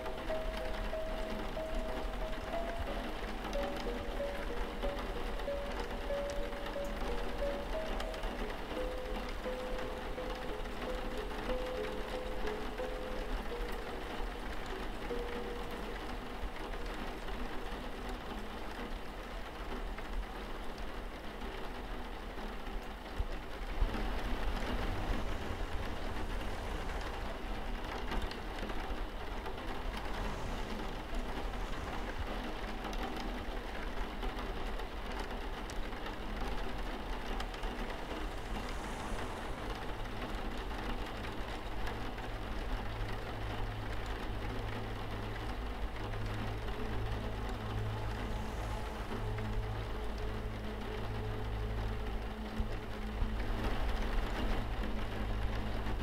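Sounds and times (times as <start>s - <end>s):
rain on a window: 0.0s - 56.0s
low drone: 23.4s - 56.0s.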